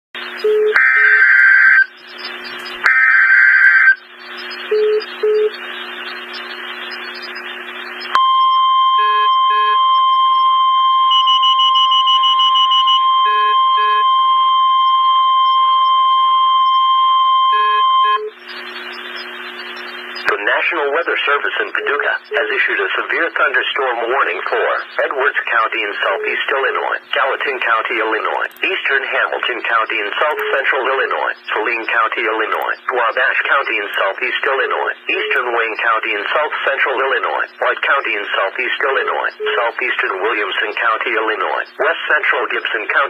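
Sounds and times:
radio static: 0.2 - 9.8, 17.5 - 43.0
steady warning alert tone: 0.3 - 41.7
raspy digital data bursts: 0.8 - 8.1.

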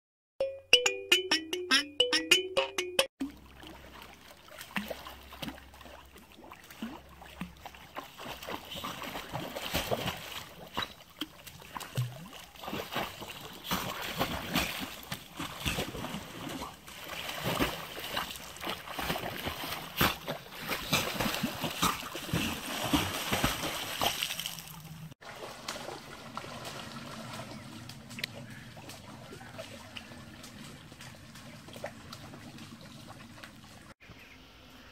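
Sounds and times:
dog splashing in water: 3.4 - 27.9.

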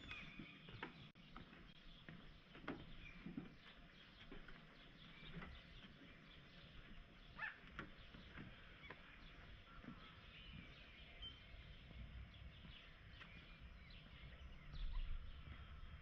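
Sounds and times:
faint outdoor ambience: 0.0 - 16.0
soft footsteps: 0.0 - 16.0
short bird calls: 7.3 - 7.7.

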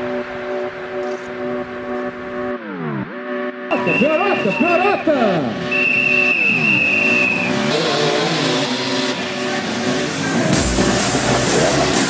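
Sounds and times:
dirt bike engine revving: 3.7 - 12.0
rock music with drums: 8.3 - 12.0.

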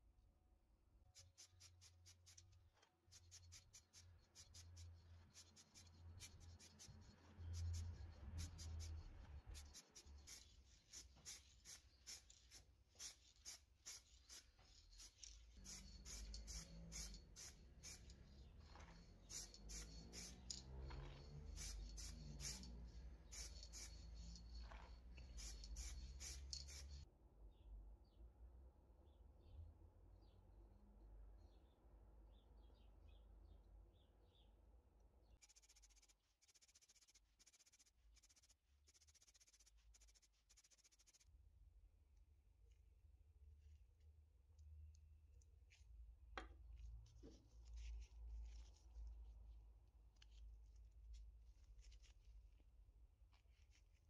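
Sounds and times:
small metal parts clicking: 11.3 - 27.0.

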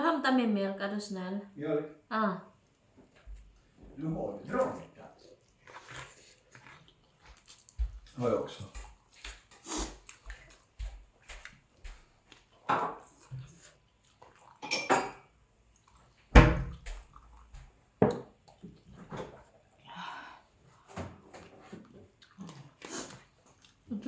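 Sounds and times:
cutlery and dishes clinking: 14.6 - 15.3.

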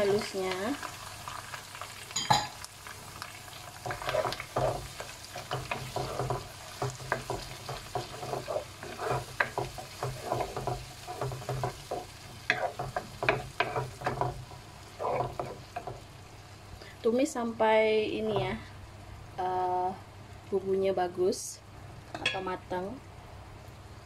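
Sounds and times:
paste sizzling in hot oil: 0.0 - 16.7
wooden spatula scraping pan: 3.8 - 16.0.

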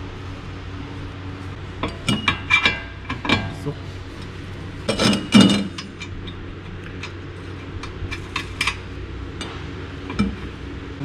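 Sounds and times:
loud metallic clanks: 4.9 - 6.4
metal tools clinking: 4.9 - 6.4.

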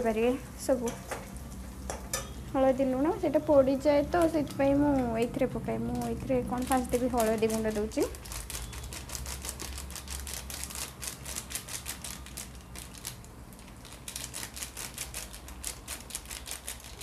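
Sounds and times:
plastic packet shaken over bowl: 6.0 - 13.2, 13.8 - 17.0.

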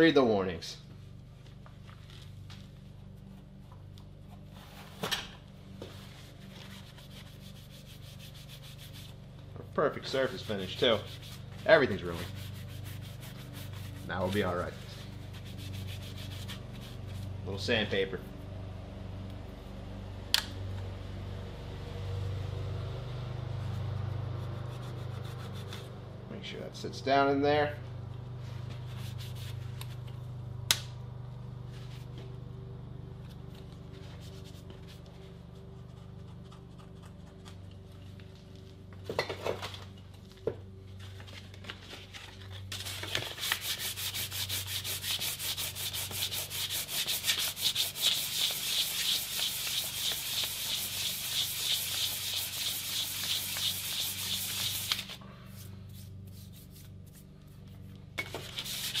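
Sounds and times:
low steady hum: 0.0 - 59.0
sandpaper rubbing on metal: 6.2 - 9.2, 10.0 - 17.3, 28.9 - 29.6, 42.8 - 57.8, 58.5 - 59.0.

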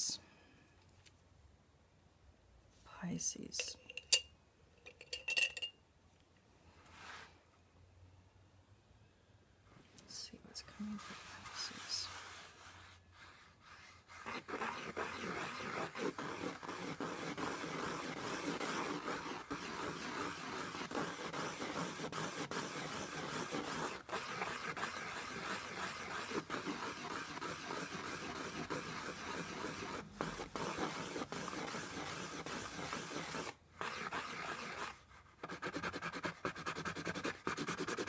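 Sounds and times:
pencil scratching on textured paper: 10.7 - 38.0.

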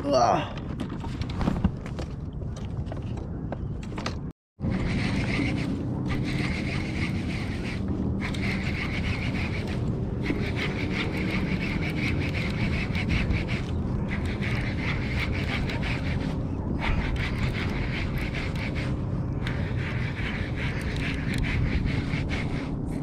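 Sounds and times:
wind noise on microphone: 0.0 - 23.0
fishing reel whirring and ticking: 4.7 - 22.6.

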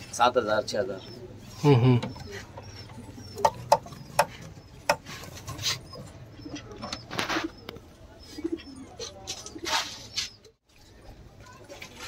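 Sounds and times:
finches chirping: 0.7 - 9.2.

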